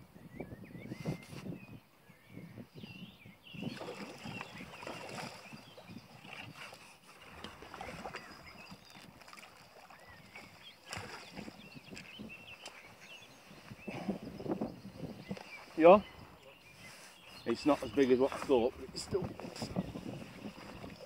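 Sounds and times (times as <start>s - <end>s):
small birds chirping: 0.2s - 21.0s
water splashing: 3.6s - 6.6s, 7.2s - 12.7s.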